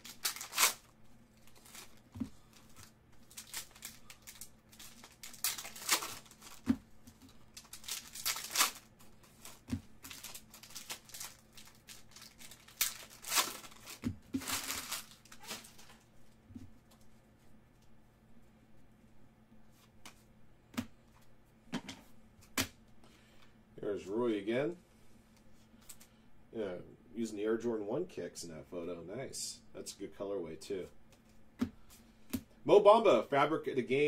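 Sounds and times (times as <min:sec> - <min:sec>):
foil wrappers tearing and crinkling: 0:00.0 - 0:06.7, 0:07.5 - 0:16.0.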